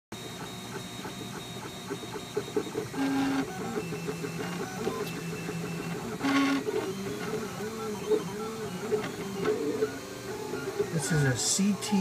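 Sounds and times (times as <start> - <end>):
stepper motors whining: 1.5 - 12.0.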